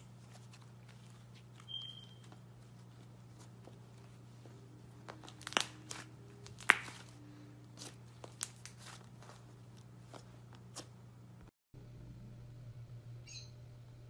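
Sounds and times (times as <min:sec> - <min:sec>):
steady low hum: 0:00.0 - 0:14.0
slime popping and crackling: 0:05.1 - 0:07.2.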